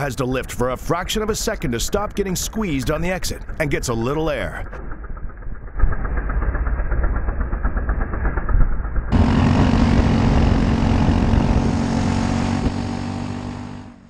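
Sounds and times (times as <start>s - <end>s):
kart engine running hard: 9.1s - 14.0s.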